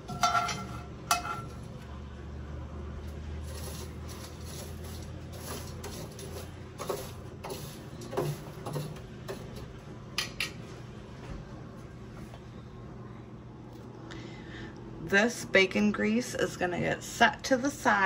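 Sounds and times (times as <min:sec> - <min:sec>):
metal sieve clinking on glass jar: 0:00.0 - 0:01.6.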